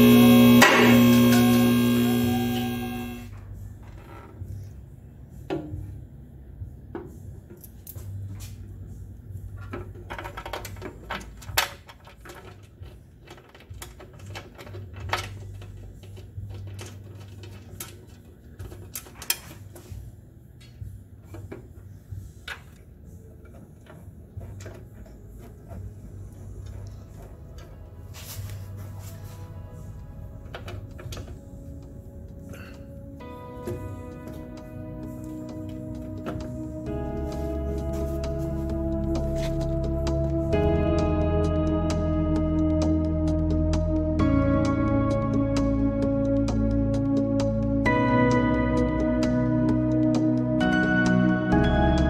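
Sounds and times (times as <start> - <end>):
low hum: 0.0 - 6.8, 25.2 - 52.0.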